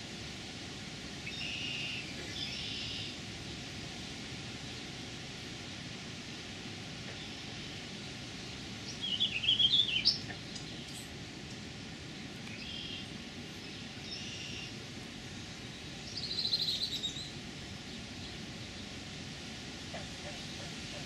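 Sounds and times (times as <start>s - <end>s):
steady background hiss: 0.0s - 21.0s
blackbirds chattering calls: 19.9s - 21.0s.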